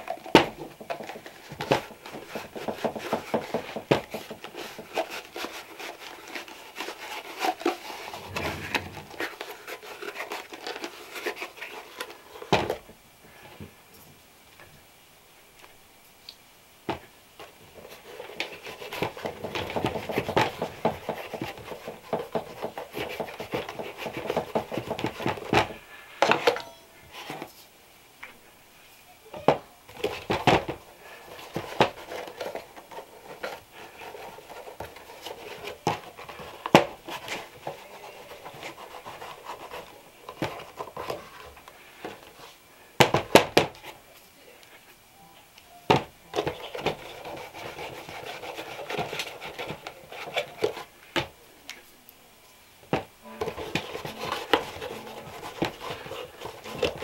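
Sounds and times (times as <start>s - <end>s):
shoe brush scrubbing leather: 4.2s - 12.0s, 47.0s - 50.6s, 53.6s - 57.0s.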